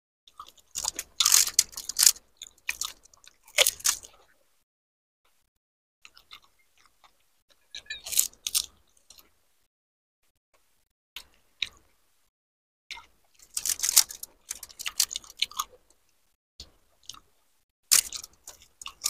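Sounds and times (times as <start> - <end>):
chewing: 0.3 - 4.4, 6.0 - 9.4, 12.9 - 16.0, 16.6 - 19.0
crisp shells crunching: 0.4 - 4.1, 13.4 - 15.6, 17.9 - 19.0
small clicks: 17.9 - 19.0.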